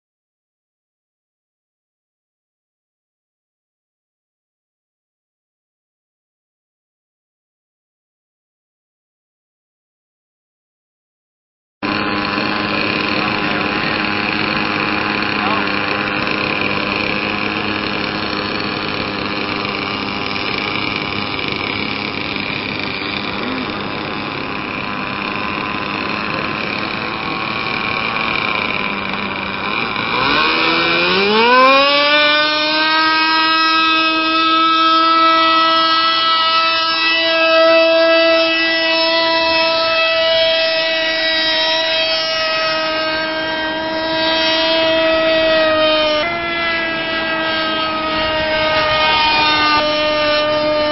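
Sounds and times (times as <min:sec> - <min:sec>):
model aeroplane engine: 0:11.8 - 0:50.9.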